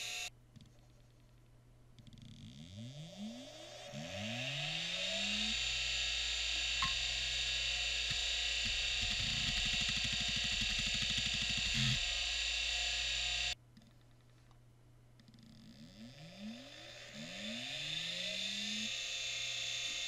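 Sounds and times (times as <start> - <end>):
hard drive motor whine: 0.0 - 0.3, 2.4 - 13.6, 15.6 - 20.0.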